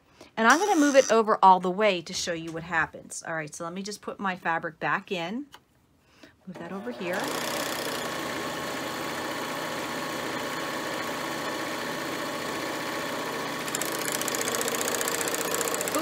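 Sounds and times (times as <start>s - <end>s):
serger machine stitching: 6.9s - 16.0s.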